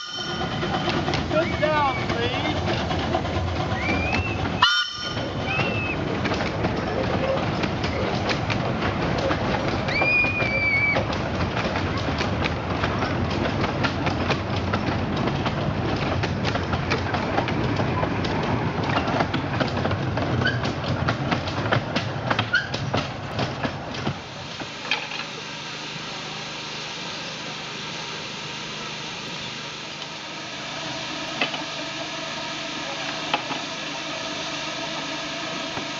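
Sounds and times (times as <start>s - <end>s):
wheels clicking over rail joints: 0.0s - 25.4s
steam locomotive hissing: 0.0s - 35.9s.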